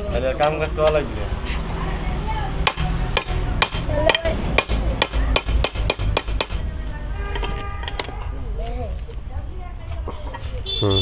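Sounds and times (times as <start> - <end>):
hammer striking metal: 2.6 - 6.6.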